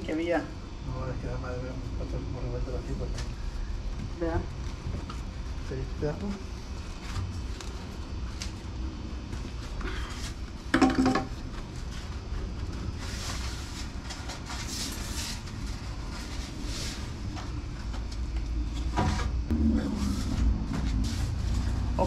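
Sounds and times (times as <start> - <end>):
steady low rumble: 11.4 - 22.0.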